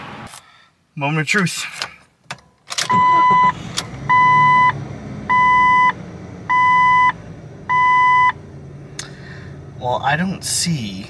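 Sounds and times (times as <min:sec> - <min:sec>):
car engine starting and idling: 0:02.3 - 0:11.0
seatbelt warning chime beeps: 0:02.8 - 0:08.4.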